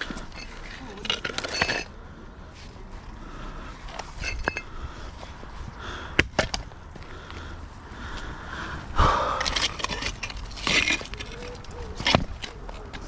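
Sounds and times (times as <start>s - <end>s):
scrap metal knocking and clinking: 0.0s - 2.0s, 3.9s - 4.8s, 9.3s - 13.0s.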